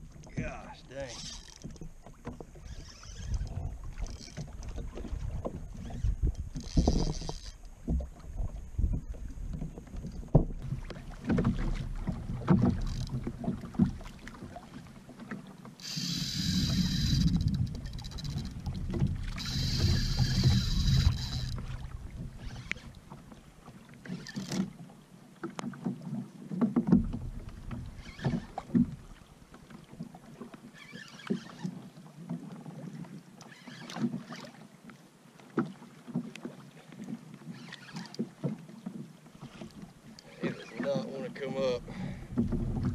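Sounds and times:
reel drag buzzing: 0.0 - 14.7, 15.7 - 24.9, 27.1 - 30.0, 30.6 - 31.9, 33.4 - 34.7, 37.3 - 38.7, 39.3 - 42.9
waves slapping a kayak hull: 0.0 - 42.9
fishing reel cranking: 0.9 - 4.8, 5.7 - 7.8, 12.7 - 13.2, 15.8 - 21.7, 22.3 - 23.0, 24.1 - 24.7, 27.9 - 28.7, 30.8 - 31.7, 33.4 - 34.5, 37.5 - 38.2
wind rumbling on microphone: 2.6 - 13.7, 16.1 - 23.0, 41.8 - 42.9.

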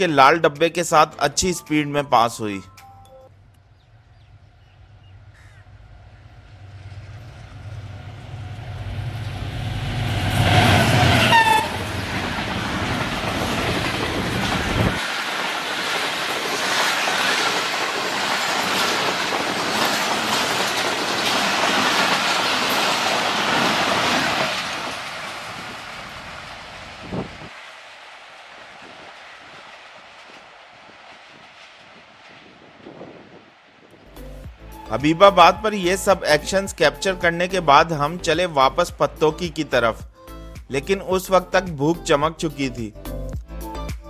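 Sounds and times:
diesel locomotive engine rumble: 3.4 - 41.6
train horn: 10.4 - 12.0, 34.6 - 37.1
train wheels clattering over rail joints: 11.4 - 26.8.

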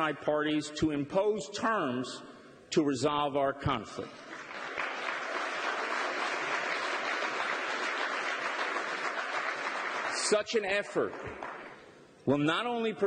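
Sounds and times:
audience applause: 4.3 - 10.4, 11.2 - 11.8.

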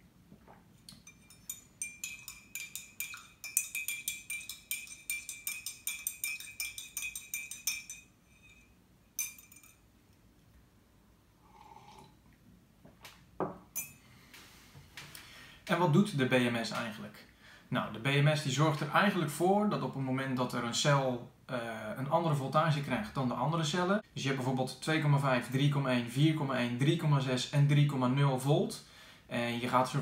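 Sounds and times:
metal spoon clinking in a mug: 0.9 - 9.9, 13.8 - 14.0.

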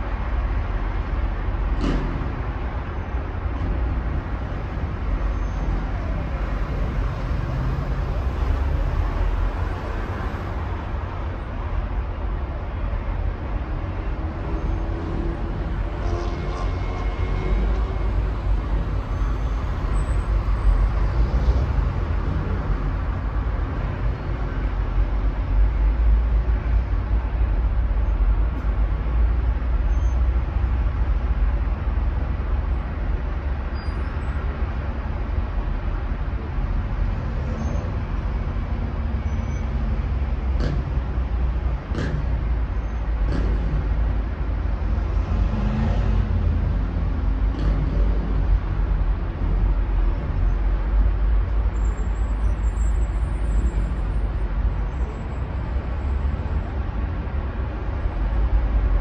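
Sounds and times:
road traffic rumble: 0.0 - 59.0.

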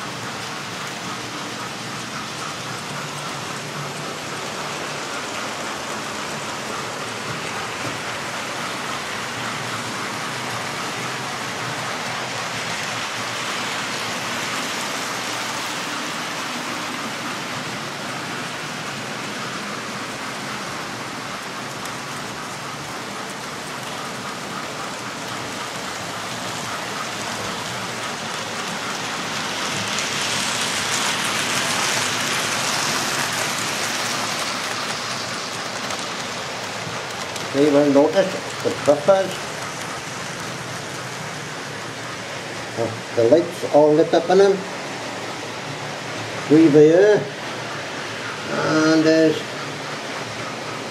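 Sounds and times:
model train wheels rattling: 17.3 - 43.5.

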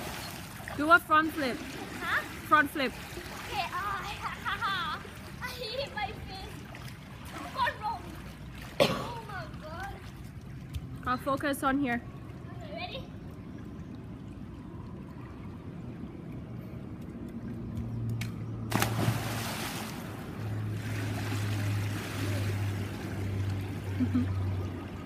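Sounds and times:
water splashing and churning: 0.0 - 25.0
child splashing into pool: 18.7 - 22.8.

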